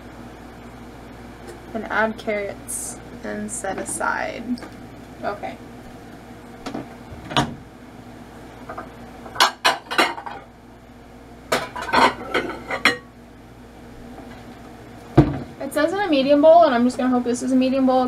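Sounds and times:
dishes and bowls clattering: 0:09.3 - 0:10.4, 0:11.5 - 0:13.1.

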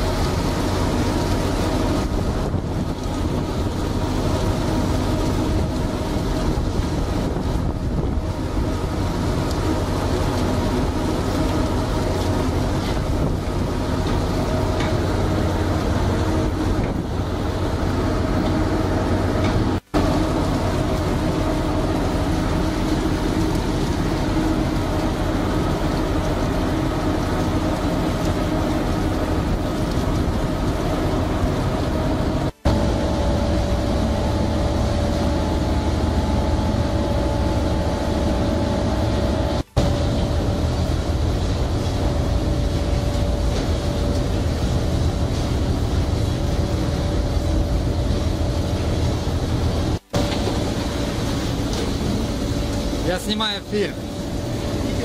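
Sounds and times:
machinery drone: 0:00.0 - 0:55.0
conveyor clatter: 0:39.8 - 0:55.0.

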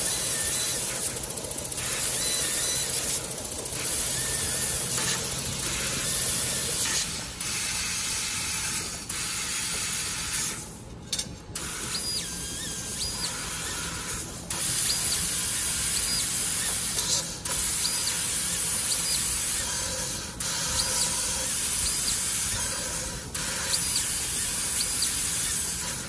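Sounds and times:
laser cutting jet hiss: 0:00.0 - 0:10.8, 0:11.6 - 0:26.0.

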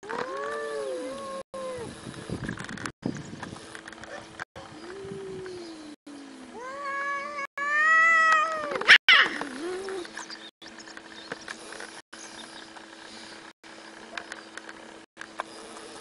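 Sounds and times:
cats yowling: 0:06.5 - 0:10.1.

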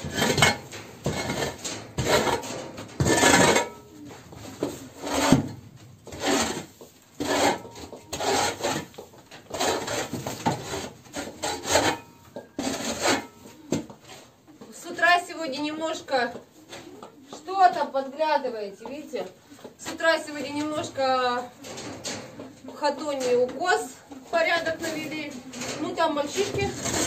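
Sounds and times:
metal shovel scraping wooden floor: 0:00.0 - 0:03.8, 0:04.4 - 0:13.4, 0:23.3 - 0:27.0.

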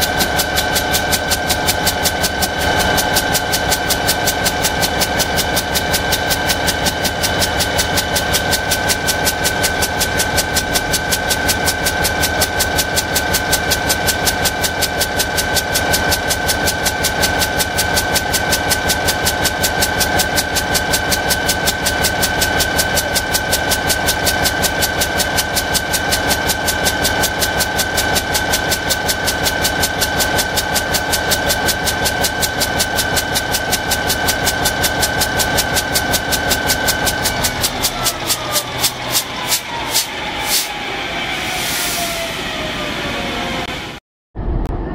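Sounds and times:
locomotive diesel engine running: 0:00.0 - 0:44.9
high whine: 0:35.6 - 0:44.9.

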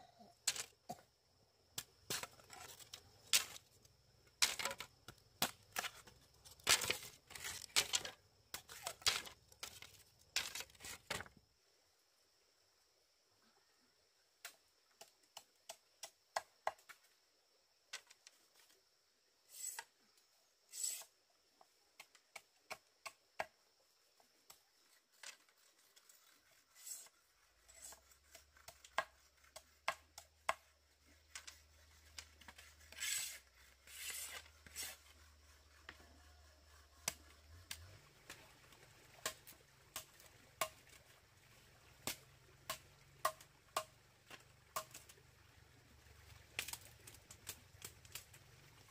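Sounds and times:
short scrapes: 0:32.4 - 0:35.3.

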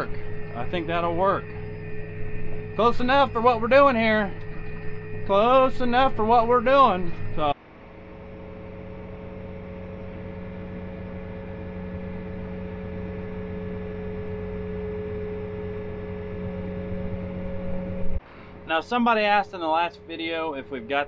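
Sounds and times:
diesel engine humming in cab: 0:00.0 - 0:21.0.

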